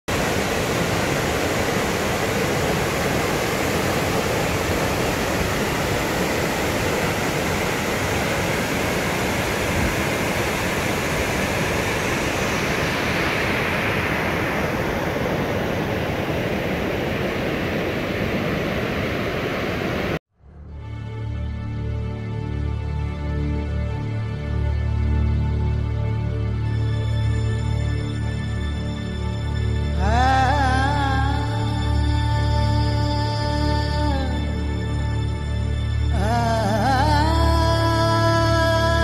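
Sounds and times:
stream rushing over boulders: 0.1s - 20.2s.

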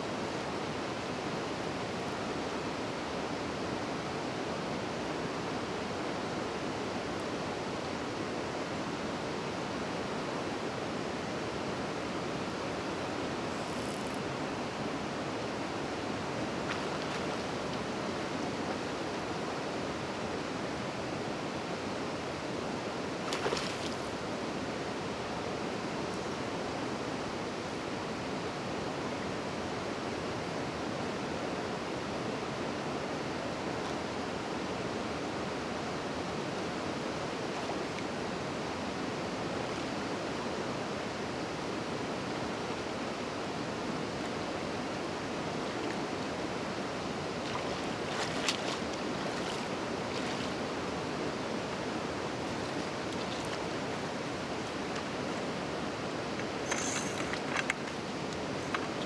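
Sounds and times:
river water rushing: 0.0s - 59.0s
brief clicks and rustles: 56.6s - 58.0s.

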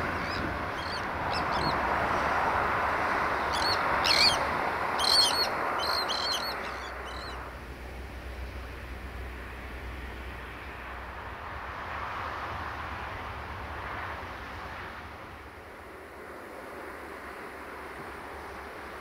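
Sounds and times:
sharp bird calls: 0.2s - 1.8s, 3.5s - 7.4s.

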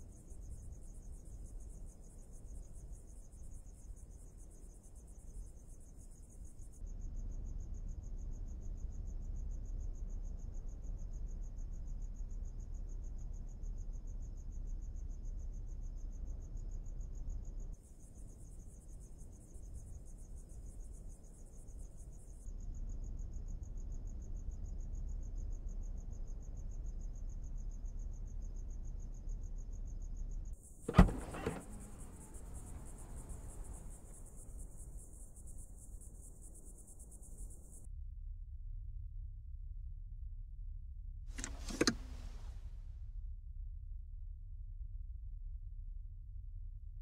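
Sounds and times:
crickets chirping: 0.0s - 37.9s
sharp clunk: 30.9s - 32.1s, 41.4s - 42.3s.

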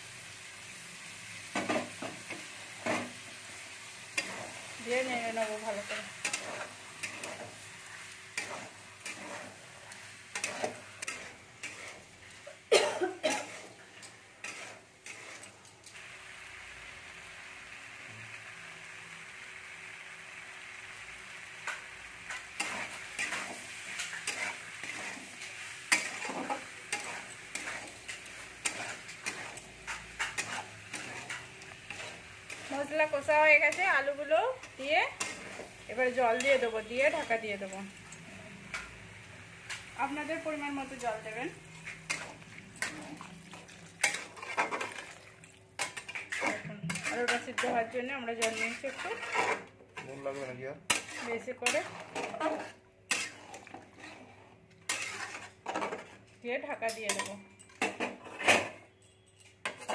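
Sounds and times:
vegetables sizzling in oil: 0.0s - 58.4s
spatula scraping and knocking pan: 1.5s - 3.2s, 4.1s - 15.6s, 21.6s - 37.8s, 39.6s - 45.2s, 45.8s - 56.2s.

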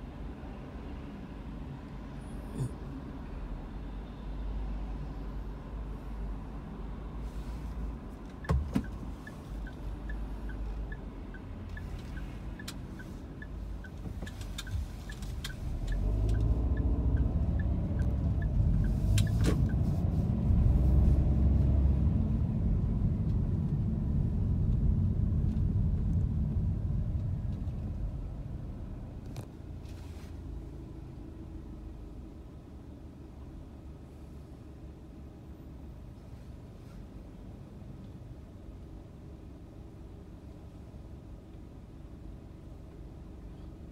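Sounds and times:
car engine and road rumble: 0.0s - 43.9s
turn signal ticking: 8.1s - 20.6s.

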